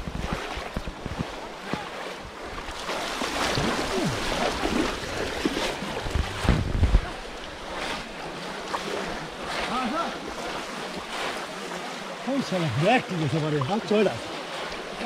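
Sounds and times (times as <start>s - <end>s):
water sloshing and splashing: 0.0s - 15.0s
loud thumps: 6.0s - 7.1s.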